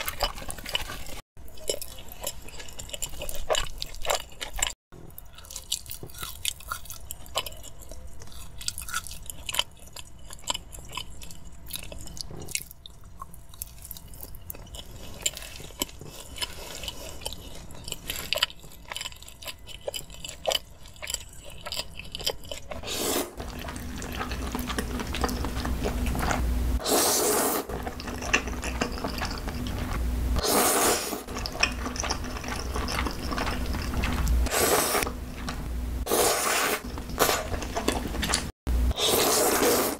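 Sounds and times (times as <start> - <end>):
chewing and biting food: 0.0 - 26.4, 27.7 - 30.0, 31.2 - 34.5, 36.8 - 38.6
eating noodles: 13.6 - 35.1
loud slurps: 38.9 - 39.9.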